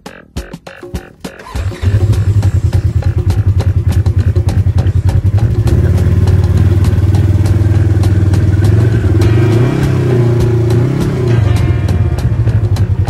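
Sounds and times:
utility vehicle engine revving: 1.2s - 13.0s.

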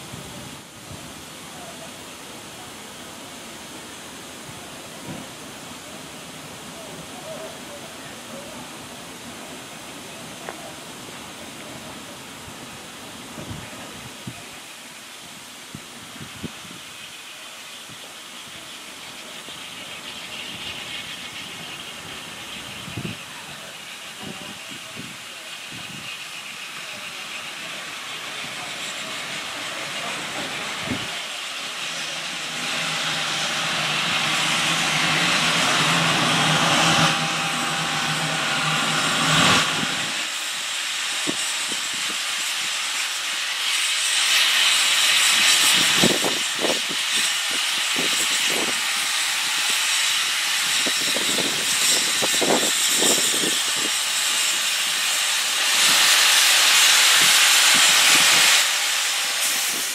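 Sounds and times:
steam locomotive hissing: 0.0s - 59.9s.

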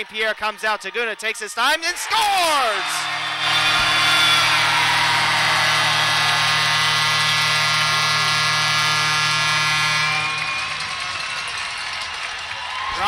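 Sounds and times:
crowd noise: 0.0s - 13.0s
arena goal horn blast: 1.9s - 11.7s.

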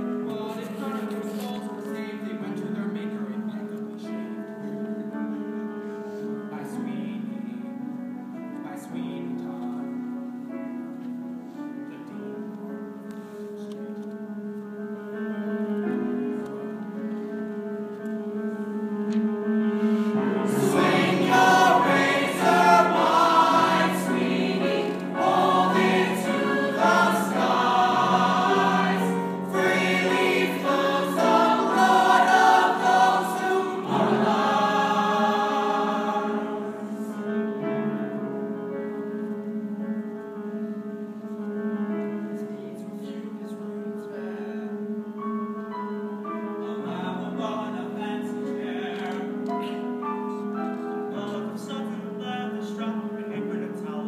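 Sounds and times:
sustained keyboard chords: 6.4s - 54.0s
ensemble singing in chorus: 19.9s - 37.7s.

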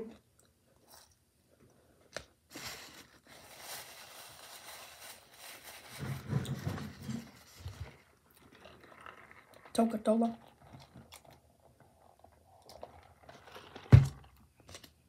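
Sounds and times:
paper wrapper rustling: 2.5s - 6.6s.

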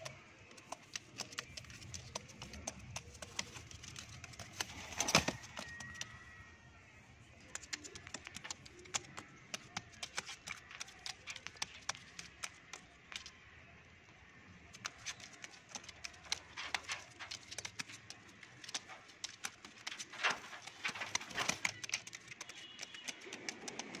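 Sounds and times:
sharp clicks and taps: 0.0s - 6.2s, 7.4s - 13.3s, 14.7s - 24.0s.

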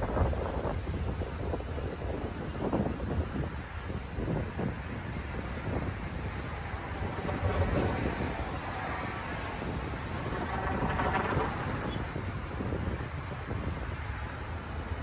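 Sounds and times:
wind buffeting microphone: 0.0s - 15.0s
cars driving past: 5.0s - 13.8s.

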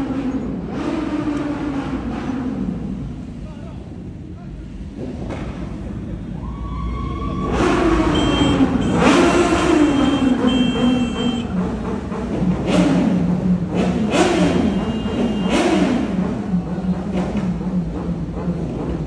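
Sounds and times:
motorcycle engine revving: 7.4s - 19.0s.

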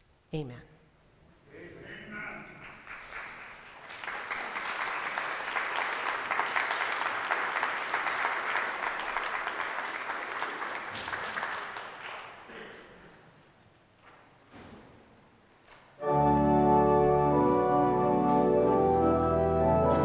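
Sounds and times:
congregation applauding: 2.4s - 13.0s.

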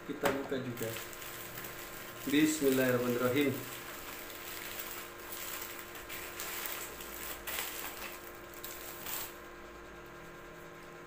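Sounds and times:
faint mains hum: 0.0s - 11.0s
packaging crinkling and rustling: 0.7s - 9.4s.

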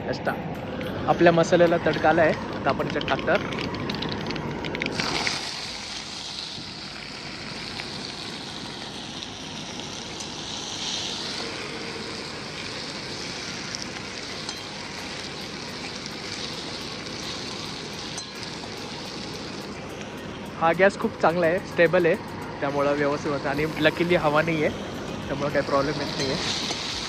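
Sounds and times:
vegetables sizzling in oil: 1.7s - 27.0s.

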